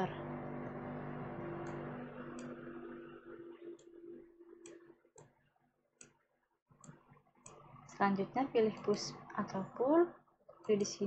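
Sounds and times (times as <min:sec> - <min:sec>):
low steady hum: 0:00.0 - 0:11.0
computer mouse clicking: 0:04.6 - 0:05.4.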